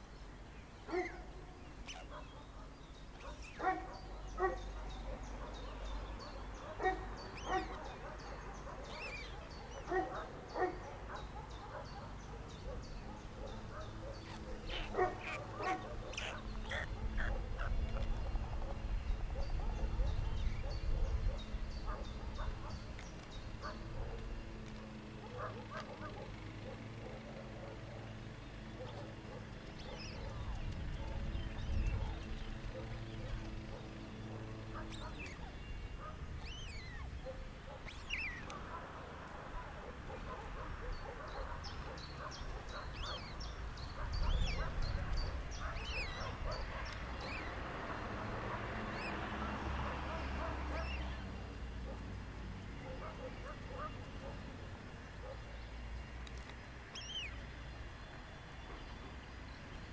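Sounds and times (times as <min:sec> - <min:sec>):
rapid faint high chirping: 0:00.0 - 0:47.6
stork chicks begging calls: 0:06.5 - 0:18.2.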